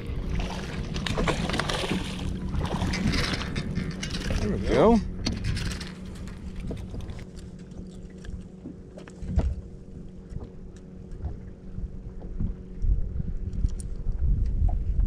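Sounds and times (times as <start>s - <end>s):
low motor hum: 0.0s - 15.0s
fish handled on boat deck: 0.2s - 11.5s.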